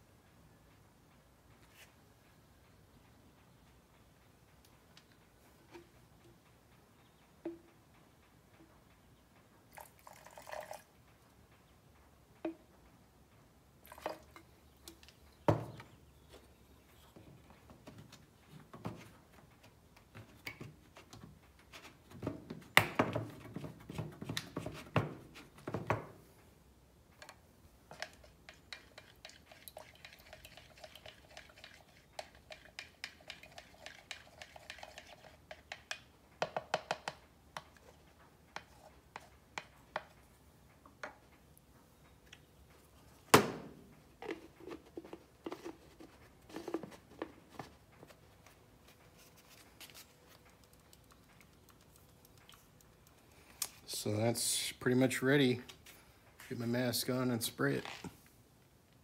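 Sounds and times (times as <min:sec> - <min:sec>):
cans and tools clinking and knocking: 0:27.9 - 0:37.7.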